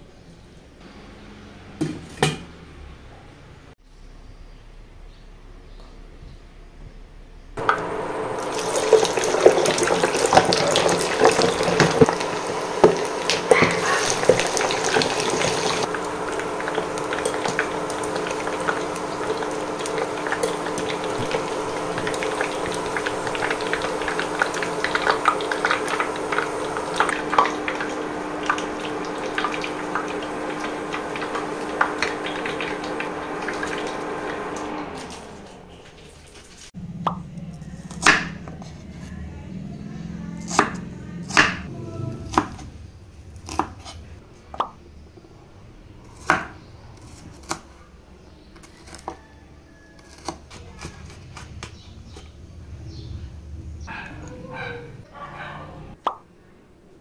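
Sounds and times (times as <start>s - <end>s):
meat deep-frying in hot oil: 7.6s - 36.7s.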